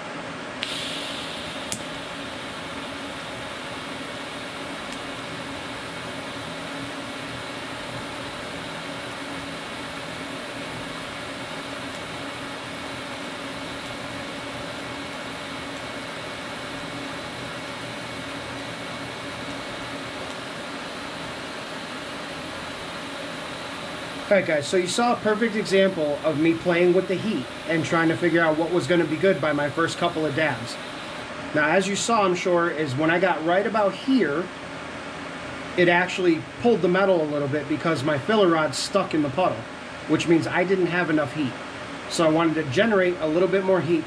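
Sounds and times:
welding arc striking click: 0.6 - 2.1, 4.8 - 5.1, 11.8 - 12.1, 15.6 - 15.9
welding arc hissing: 0.6 - 34.5.

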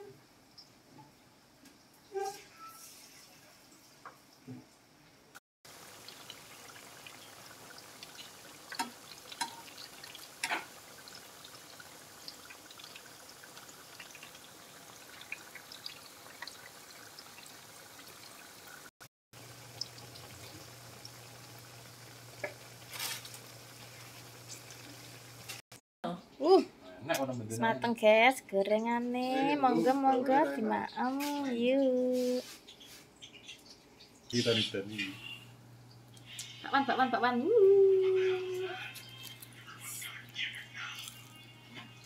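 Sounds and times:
food deep-frying in hot oil: 5.7 - 25.6, 35.9 - 42.0
oil popping and crackling: 5.7 - 25.6, 38.8 - 42.0.

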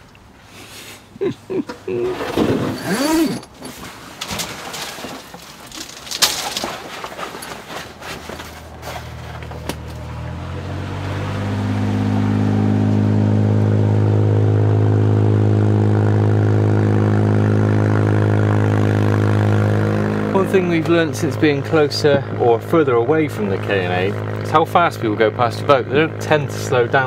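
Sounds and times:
handling knocks and clicks: 1.7 - 10.1
boat diesel engine: 7.9 - 27.0.

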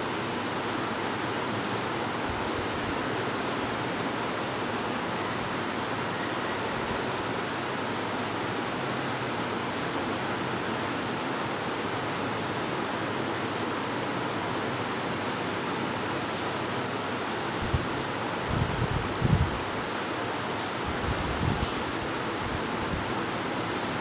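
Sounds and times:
steady background hiss: 0.0 - 24.0.

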